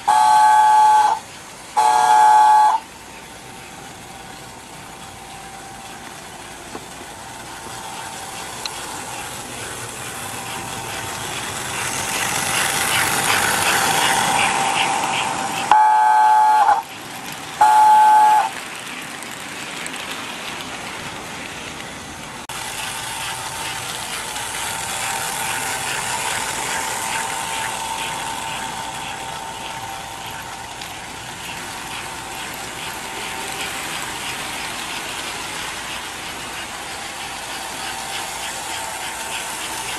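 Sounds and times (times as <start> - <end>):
toy train whistle: 0.0 - 2.9, 13.0 - 16.9, 17.6 - 18.6
toy train clattering on track: 0.0 - 39.9.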